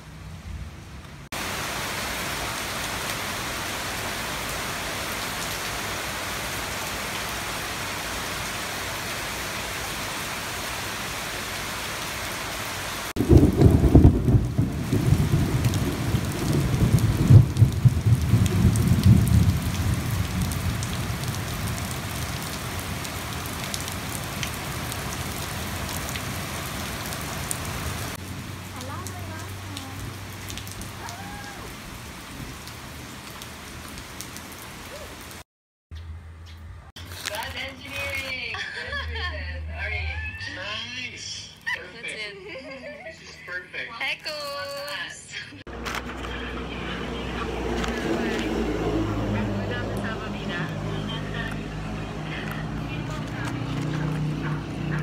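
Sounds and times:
heavy rain: 0.0s - 35.4s, 37.1s - 55.0s
rain splashing on flooded pavement: 1.2s - 35.4s, 45.7s - 55.0s.

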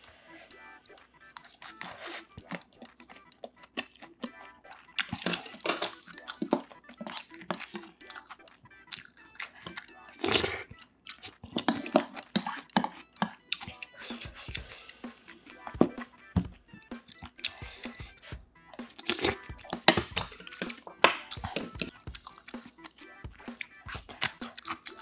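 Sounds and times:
chewing and mouth noises: 0.3s - 25.0s.

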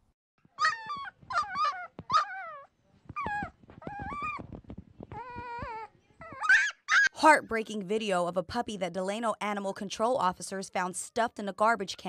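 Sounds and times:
puppy whimpering cries: 0.6s - 4.4s, 5.1s - 7.2s.

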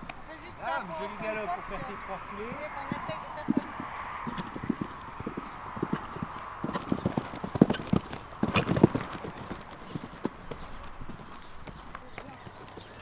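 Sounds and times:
horse hoofbeats on sand: 1.1s - 13.0s.

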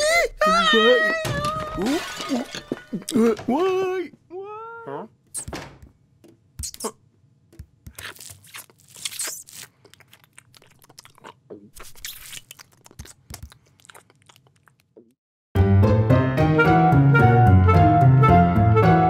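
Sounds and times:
cartoon cat crunching food: 7.6s - 15.2s.

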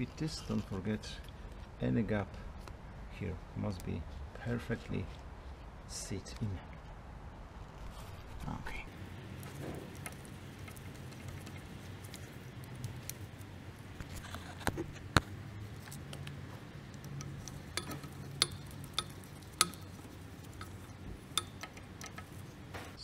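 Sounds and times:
low steady hum: 0.0s - 23.0s
metallic clicks of hand tool: 17.0s - 22.4s.

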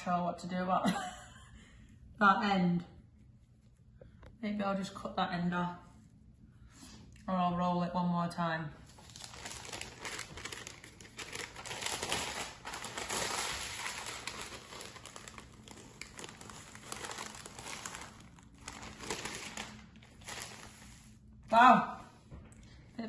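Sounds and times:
baking paper crinkling: 8.8s - 21.3s.

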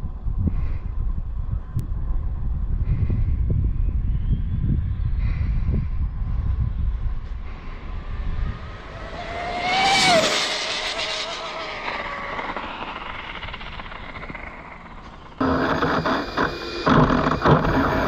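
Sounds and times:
electric motor whining past: 7.4s - 18.0s.

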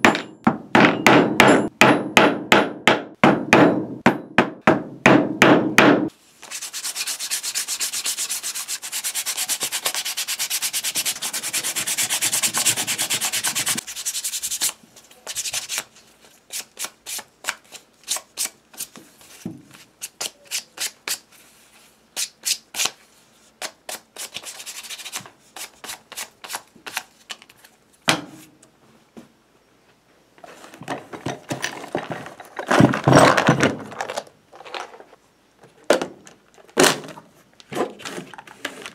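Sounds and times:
sandpaper rubbing on leather: 6.4s - 15.8s.

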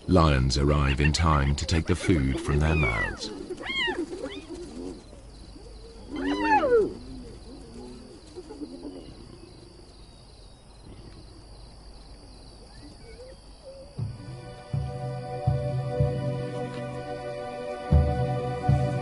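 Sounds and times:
hyenas calling: 0.3s - 9.8s.

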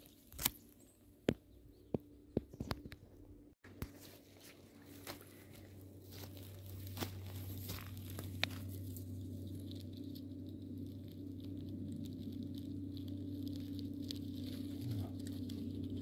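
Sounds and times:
twigs snapping: 0.0s - 1.4s, 4.8s - 16.0s
low hum: 0.0s - 16.0s
footsteps in dry leaves: 3.7s - 16.0s.

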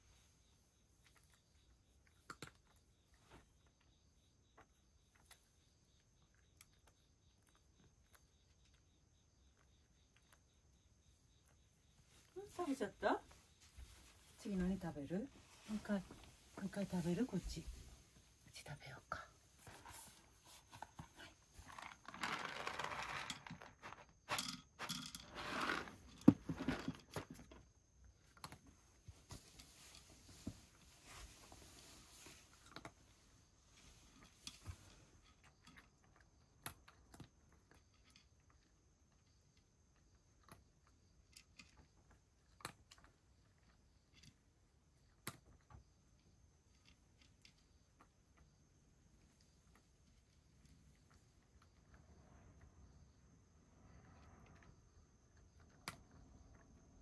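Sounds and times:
dry cat food rattling into tray: 21.6s - 27.6s
cat eating from wooden dish: 34.2s - 44.4s.

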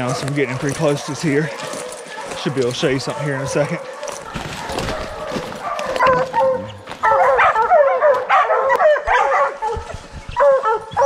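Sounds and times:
hounds barking: 0.0s - 11.0s.

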